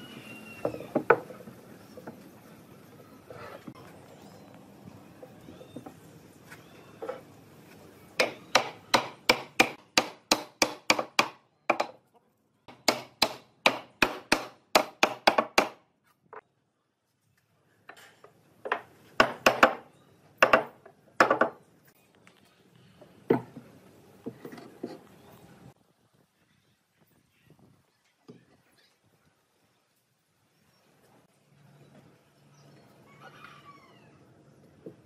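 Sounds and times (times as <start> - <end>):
hammer striking wooden panel: 8.2 - 11.9, 12.7 - 15.8.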